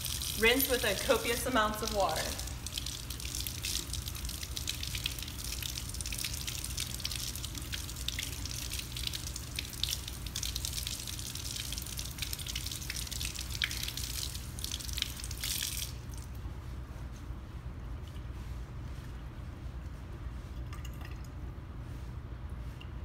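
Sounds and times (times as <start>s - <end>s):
tap water running into sink: 0.0s - 16.0s
small splashes and drips: 0.0s - 16.7s, 17.8s - 19.2s, 19.8s - 23.0s.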